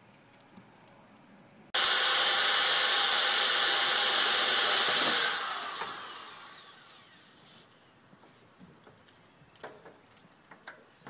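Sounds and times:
loud steady hiss: 1.8s - 7.7s.

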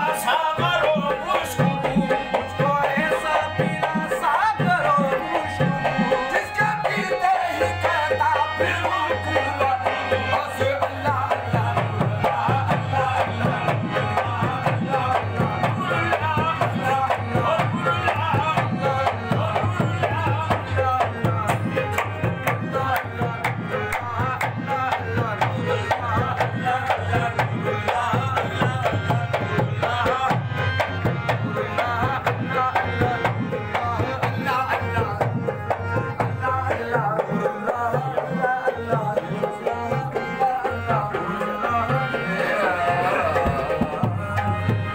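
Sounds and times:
harmonium: 0.0s - 44.9s
person singing: 31.4s - 44.9s.

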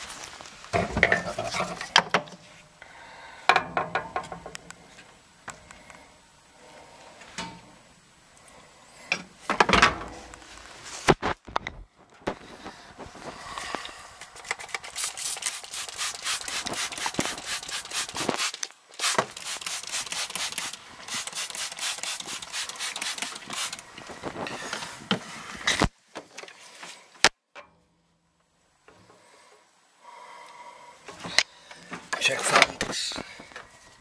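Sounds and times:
scratchy rubbing strokes: 14.9s - 23.8s.

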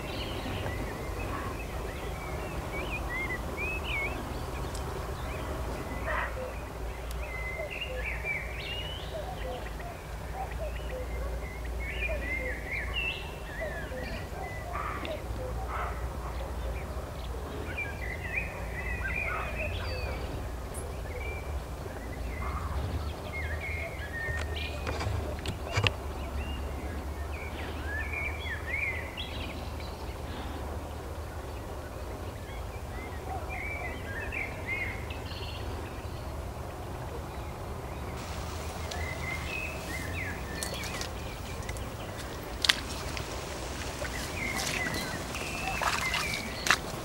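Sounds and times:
wild birds singing: 0.0s - 47.0s
steady low rumble: 38.0s - 47.0s
grass rustling: 38.2s - 47.0s.

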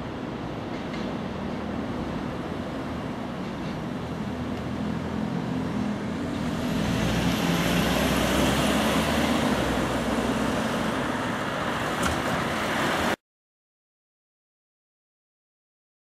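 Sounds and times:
electric train rolling rumble: 0.0s - 12.8s.

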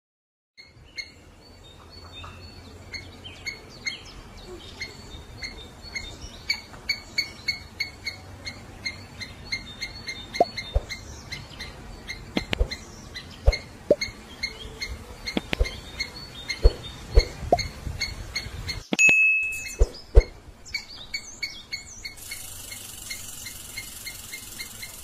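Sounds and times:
small animal chirping: 4.8s - 18.9s, 19.6s - 25.0s
sharp clicks: 12.4s - 12.8s, 15.3s - 15.8s.

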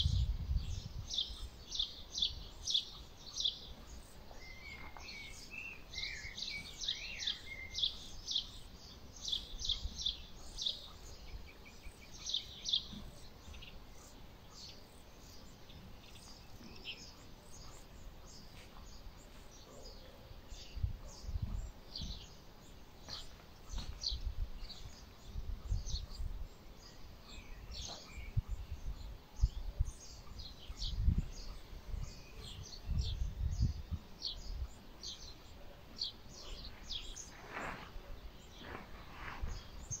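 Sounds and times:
small birds chirping: 0.0s - 40.0s.

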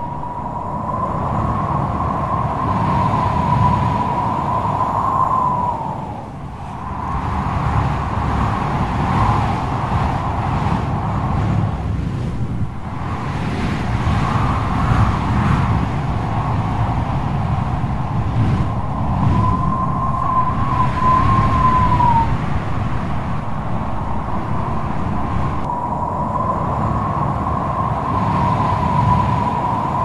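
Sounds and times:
strong wind and sea surf: 0.0s - 30.0s
thin wavering whistle: 18.8s - 22.4s.

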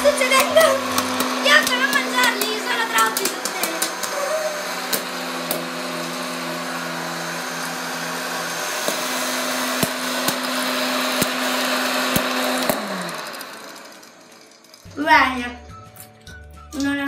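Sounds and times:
popcorn kernels popping: 0.0s - 4.2s, 8.8s - 14.9s
popcorn maker fan humming: 0.0s - 15.9s.

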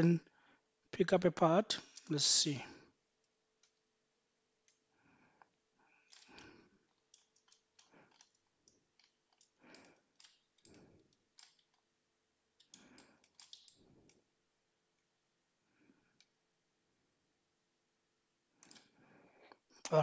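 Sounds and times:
computer mouse clicks: 7.1s - 11.8s, 12.6s - 14.2s.

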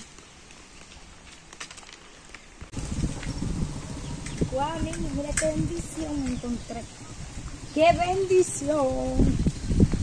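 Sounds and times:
footsteps on dirt path: 0.0s - 8.1s
wind rumble on microphone: 2.7s - 10.0s.

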